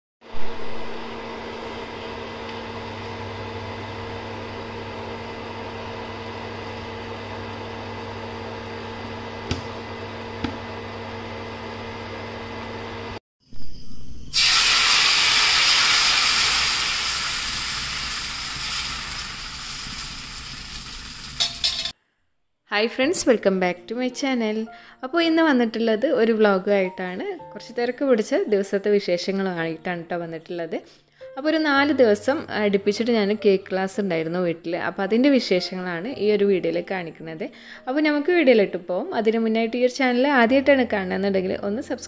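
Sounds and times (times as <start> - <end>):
cooktop electric hum: 0.2 - 22.0, 31.5 - 42.0
batter hissing in hot pan: 14.3 - 21.9
liquid boiling in saucepan: 14.4 - 21.9.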